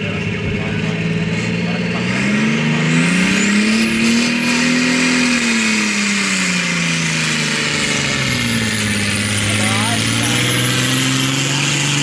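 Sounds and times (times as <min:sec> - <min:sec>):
tractor diesel engine at full throttle: 0:00.0 - 0:12.0.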